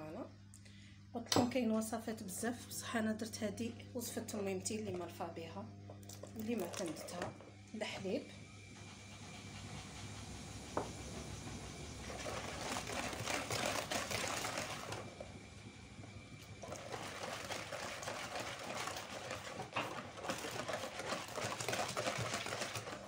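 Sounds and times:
whisk rattling in plastic bowl: 0:06.2 - 0:07.3, 0:12.1 - 0:15.1, 0:16.6 - 0:23.0.

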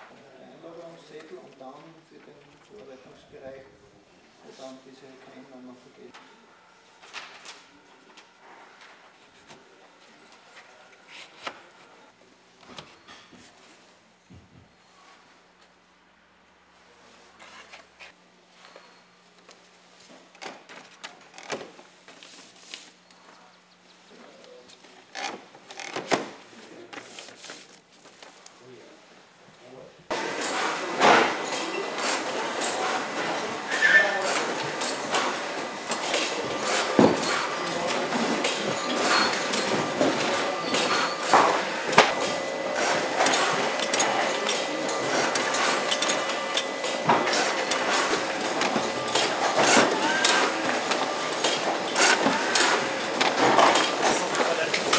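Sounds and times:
machinery humming: 0:30.1 - 0:54.9.

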